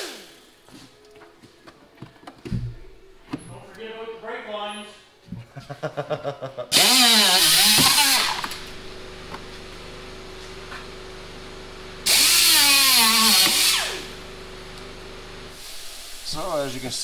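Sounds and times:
power tool cutting plastic: 6.7 - 8.8, 12.0 - 14.2
faint steady hum: 7.9 - 17.0.

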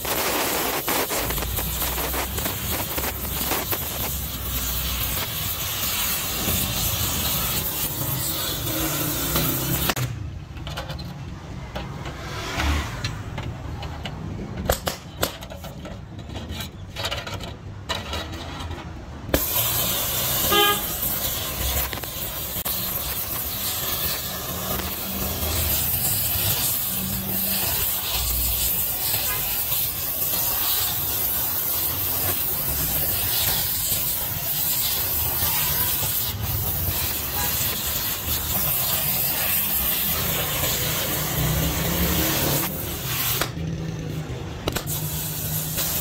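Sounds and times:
welding torch flame hissing: 0.0 - 10.1, 19.3 - 46.0
sharp clicks and knocks: 9.3 - 19.5, 44.6 - 45.0.

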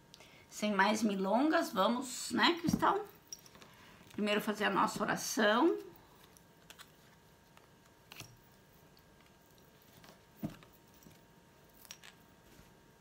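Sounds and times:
playing cards tapping and rustling: 9.2 - 11.2.

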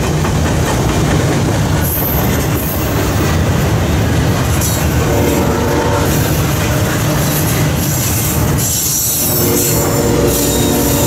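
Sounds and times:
freight train wheels rumbling on rail: 0.0 - 11.0
high wheel squeal: 4.6 - 11.0.

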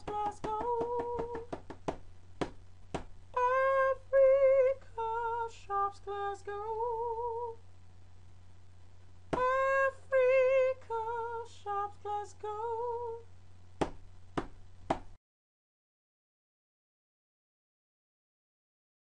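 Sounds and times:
woman singing a cappella jingle: 0.0 - 1.5, 3.3 - 7.6, 9.4 - 13.3
steady low hum: 0.0 - 15.2.

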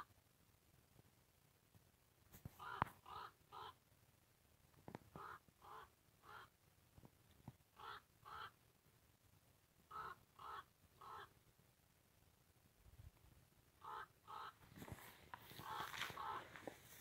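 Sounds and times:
crow cawing: 2.6 - 3.8, 5.2 - 6.5, 7.8 - 8.6, 9.9 - 11.3, 13.8 - 14.6, 15.5 - 16.6.

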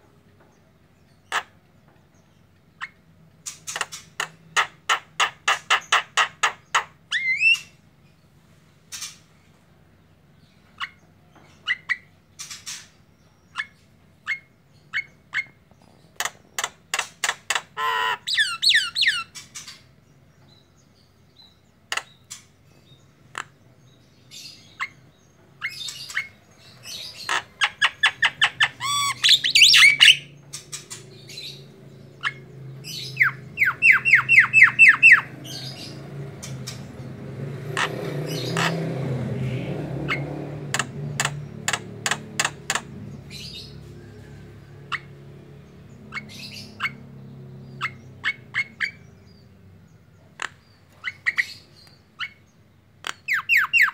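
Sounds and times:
bird harsh squawks: 2.8 - 7.7, 17.8 - 19.8, 25.6 - 31.6, 32.2 - 36.0, 37.8 - 38.8
bird whistled chirps: 28.8 - 30.3, 33.2 - 35.3.

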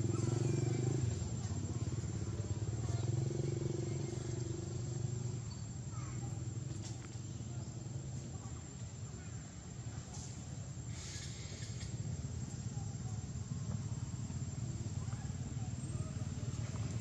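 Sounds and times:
engine running: 0.0 - 5.5.

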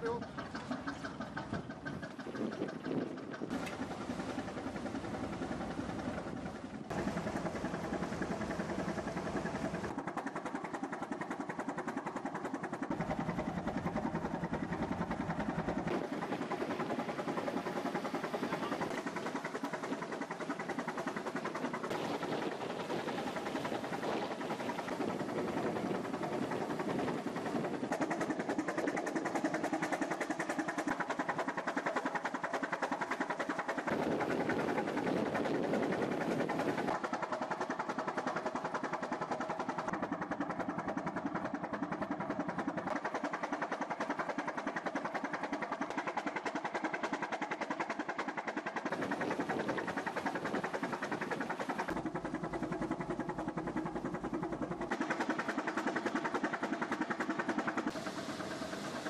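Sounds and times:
boat engine running: 0.0 - 10.0, 48.8 - 59.0.

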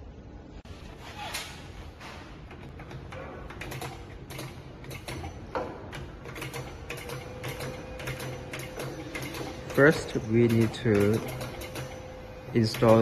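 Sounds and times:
mechanical clicking: 2.5 - 13.0
steady machine whine: 6.6 - 13.0.

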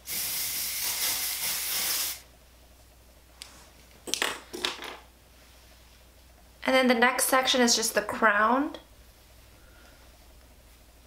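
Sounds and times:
aerosol spray hissing: 0.0 - 2.2.

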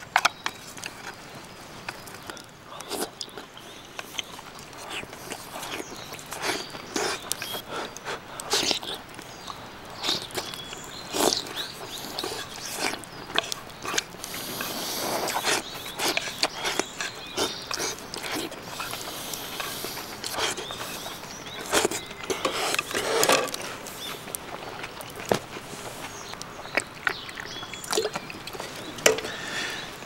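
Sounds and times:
person chewing: 1.9 - 30.0
person slurping broth: 11.1 - 24.4.

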